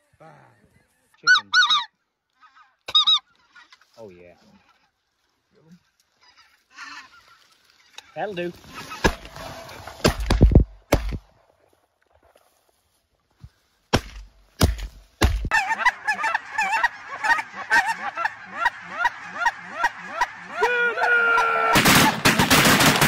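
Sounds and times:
geese honking: 1.2s - 1.9s, 15.5s - 22.2s
shotgun shots: 10.0s - 11.2s, 21.8s - 23.0s.

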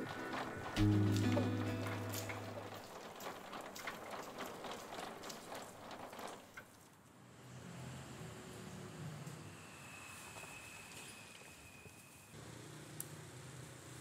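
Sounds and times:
cart wheels clicking and rattling: 0.0s - 7.0s
music jingle: 0.7s - 2.7s.

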